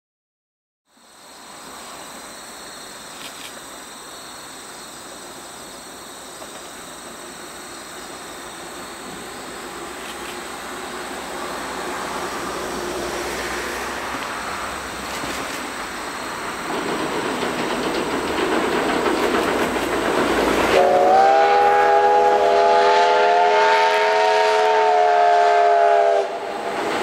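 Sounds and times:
insects droning: 0.9s - 27.0s
distant steam train running: 1.0s - 27.0s.

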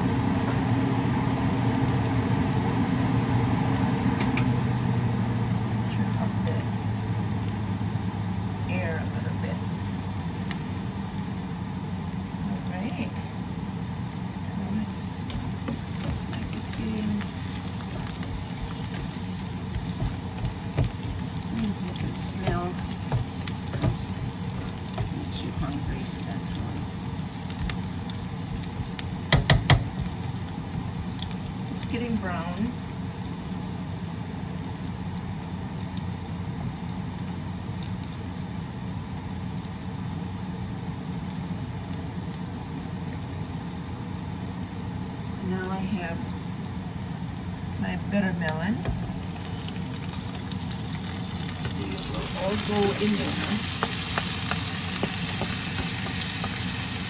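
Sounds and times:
onions sizzling in oil: 0.0s - 57.0s
steady low hum: 0.0s - 57.0s.

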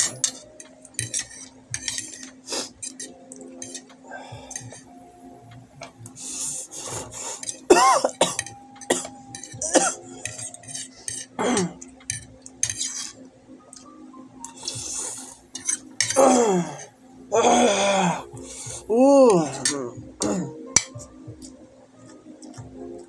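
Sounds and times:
vocal grunts: 16.2s - 18.2s.

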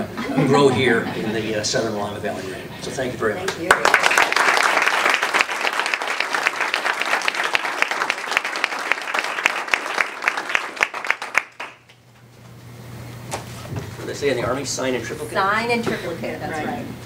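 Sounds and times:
audience applauding: 3.5s - 12.0s.

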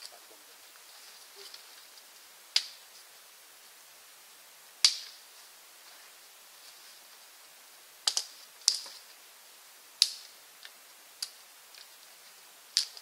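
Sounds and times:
sticks cracking under blade: 2.6s - 2.8s, 4.8s - 5.2s, 8.0s - 9.0s, 10.0s - 11.9s, 12.8s - 13.0s.

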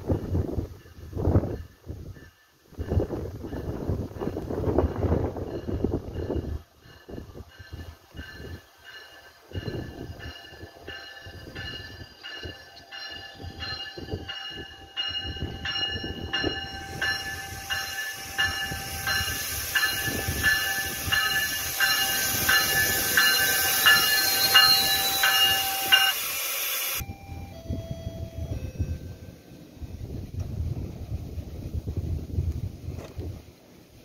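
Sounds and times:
train bell ringing: 0.7s - 29.8s
rushing hiss of wheels: 16.8s - 27.0s.

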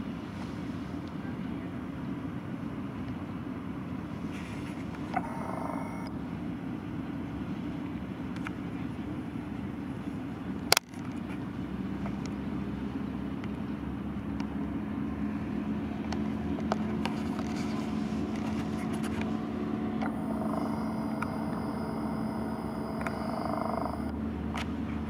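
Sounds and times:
motorboat engine humming: 3.3s - 6.4s, 13.8s - 25.0s.

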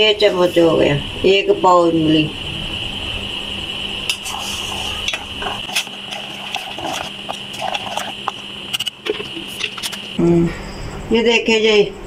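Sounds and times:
steady high whine: 0.0s - 12.0s
spoon scraping metal pot: 4.1s - 10.1s.

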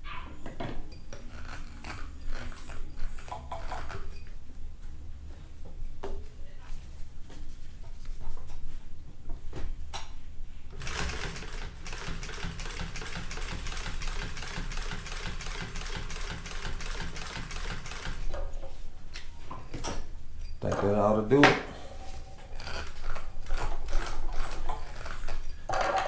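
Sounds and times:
sewing machine rattling: 10.8s - 18.4s, 22.6s - 25.5s.

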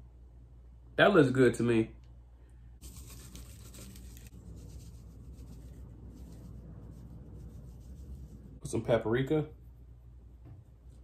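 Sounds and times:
low steady hum: 0.0s - 11.0s
rubbing and scratching on cutting board: 2.8s - 8.6s.

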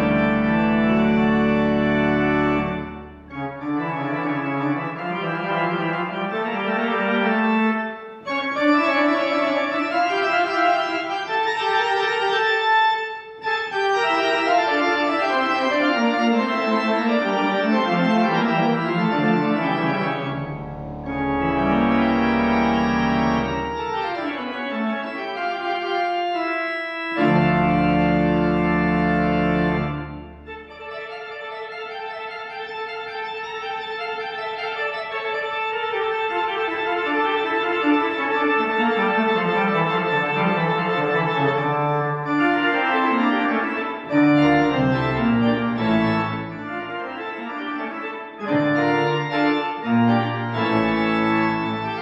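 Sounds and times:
deep organ bass notes: 0.0s - 7.5s, 15.1s - 24.8s, 26.4s - 30.8s, 39.1s - 47.6s, 48.4s - 52.0s
organ playing sustained chords: 0.0s - 52.0s.

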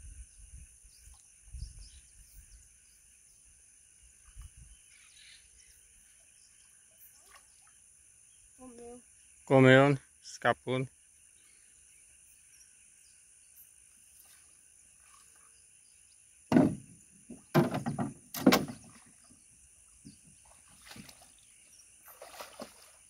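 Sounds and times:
faint insect chirring: 0.0s - 23.0s
water splashes around boat: 6.5s - 8.0s, 14.0s - 15.8s, 16.5s - 23.0s
small boat knocks: 16.5s - 19.3s, 20.0s - 21.2s.

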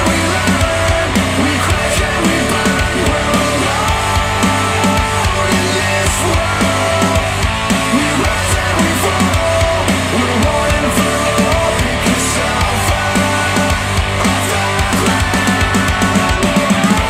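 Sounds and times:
rock music through speakers: 0.0s - 17.0s.

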